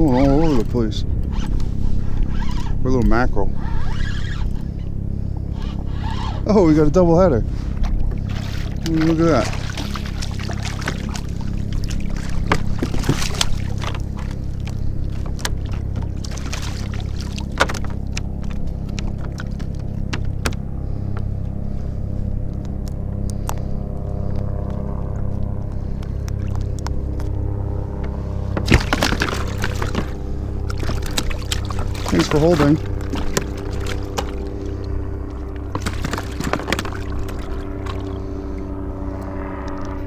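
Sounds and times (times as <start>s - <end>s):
low motor drone: 0.0s - 40.0s
water splashing: 7.6s - 20.6s, 28.6s - 38.6s.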